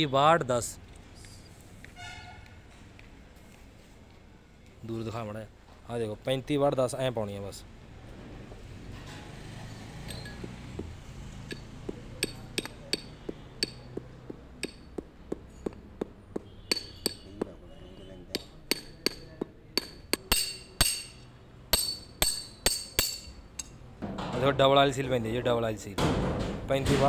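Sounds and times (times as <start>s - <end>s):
hammer tapping metal: 10.0s - 17.6s, 18.3s - 23.8s.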